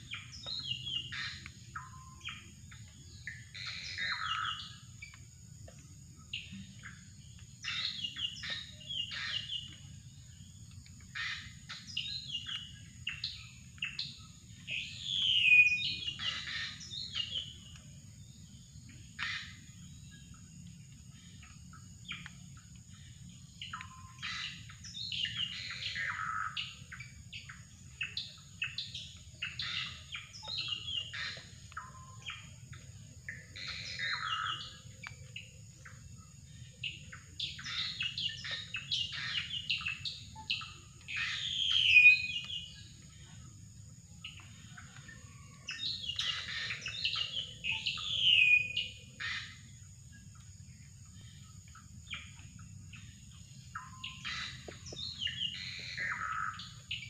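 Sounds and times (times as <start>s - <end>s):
bird chirping and whistling: 37.6s - 42.6s.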